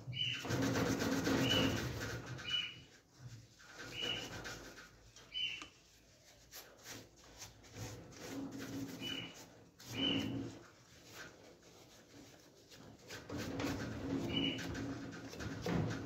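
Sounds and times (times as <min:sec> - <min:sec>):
steel wool scrubbing metal: 0:00.2 - 0:16.0
short high squeaks: 0:09.0 - 0:10.6.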